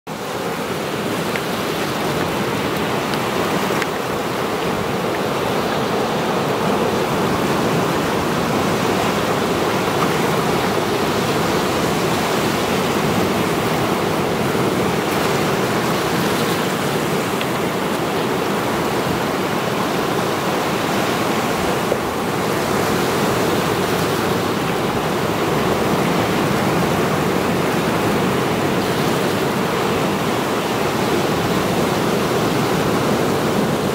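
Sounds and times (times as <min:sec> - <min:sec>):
waves breaking on rocky shore: 0:00.1 - 0:33.9.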